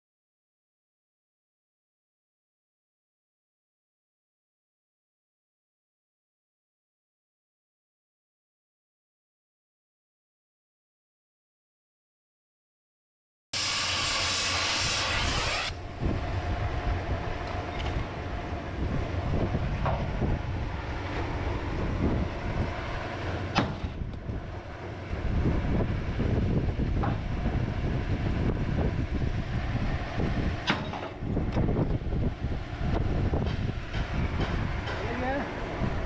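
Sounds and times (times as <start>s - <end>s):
steady low rumble: 13.6s - 36.0s.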